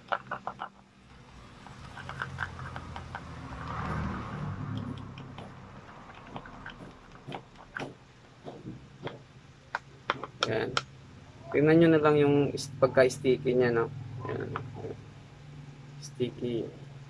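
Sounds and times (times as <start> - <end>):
palette knife scraping in cup: 1.6 - 3.4.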